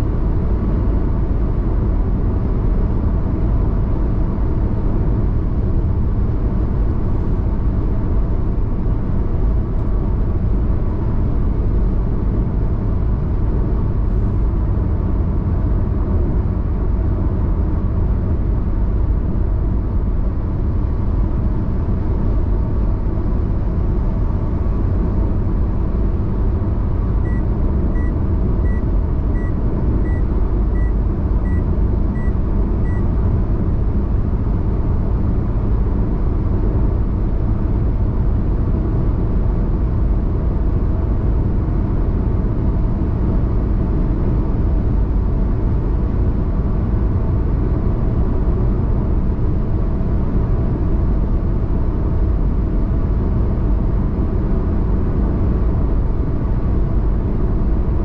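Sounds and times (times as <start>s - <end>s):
car engine rumble: 0.0s - 58.0s
road and tyre noise: 0.0s - 58.0s
short high electronic beeps: 28.0s - 28.8s, 29.4s - 30.2s, 32.2s - 33.0s.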